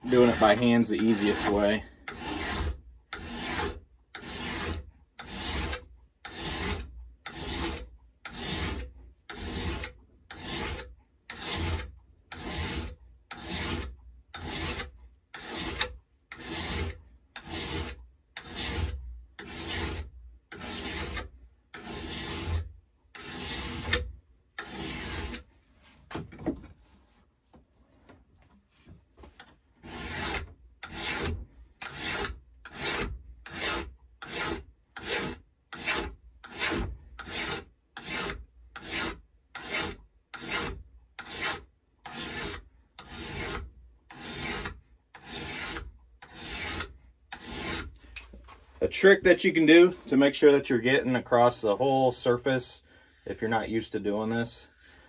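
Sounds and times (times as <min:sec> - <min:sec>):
light scrapes: 0:00.0 - 0:07.8, 0:42.1 - 0:55.0
file rasping on steel: 0:00.0 - 0:25.5, 0:29.8 - 0:48.4, 0:54.6 - 0:55.0.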